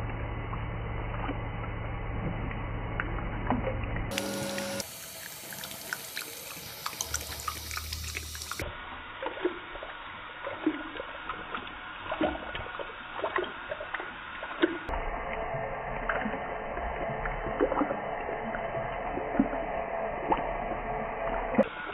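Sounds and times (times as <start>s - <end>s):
dog lapping water: 3.5s - 14.9s, 17.0s - 21.9s
water trickling from tap: 4.1s - 14.9s.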